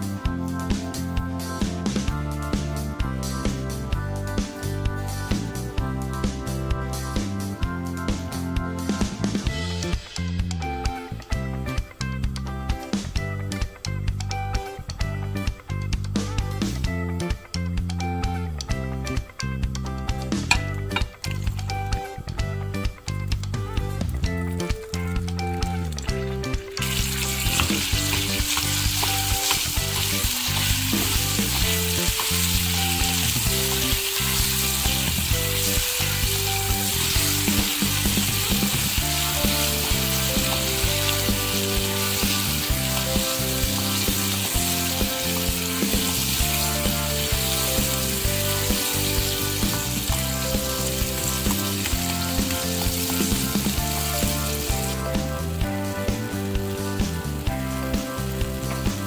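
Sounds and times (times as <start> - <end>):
background music: 0.0 - 59.0
berries sizzling in a saucepan: 26.8 - 55.1.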